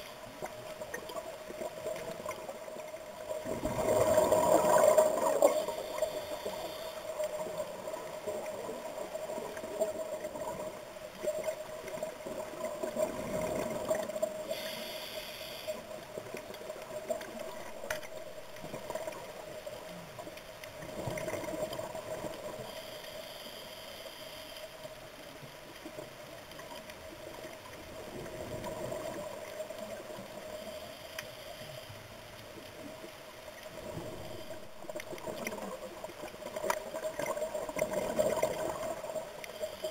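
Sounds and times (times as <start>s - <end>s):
diver's bubbles gurgling: 3.3s - 6.1s, 7.4s - 14.4s, 20.8s - 22.6s, 33.7s - 39.6s.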